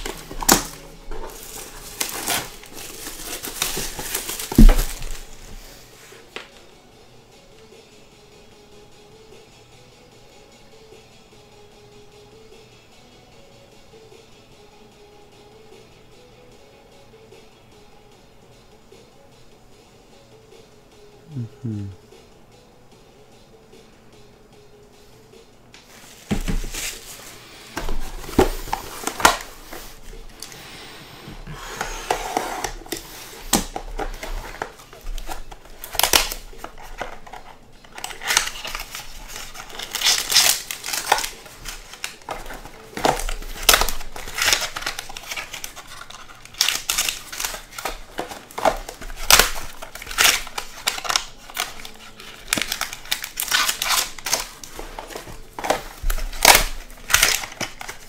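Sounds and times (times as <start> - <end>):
foil packs crinkling and tearing: 0.0 - 5.6, 26.0 - 30.6, 32.0 - 58.0.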